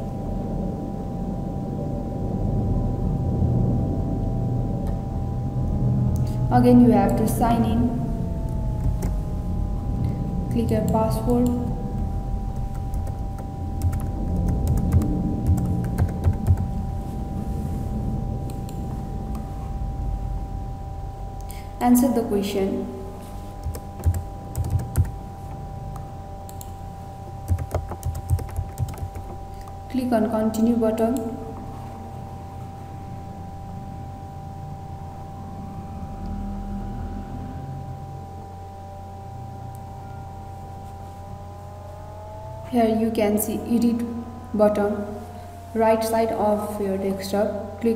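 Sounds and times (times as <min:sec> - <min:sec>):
faint steady tone: 0:00.0 - 0:47.9
steady low hum: 0:00.0 - 0:47.9
keyboard keys clicking: 0:12.6 - 0:16.7, 0:23.6 - 0:25.1, 0:27.5 - 0:29.8.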